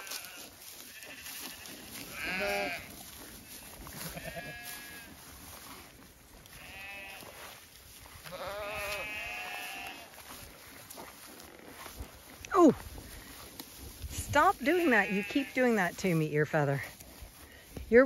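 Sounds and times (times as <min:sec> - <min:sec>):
sheep bleating: 0:00.0 - 0:05.2, 0:06.4 - 0:07.5, 0:08.1 - 0:10.3, 0:14.6 - 0:15.8.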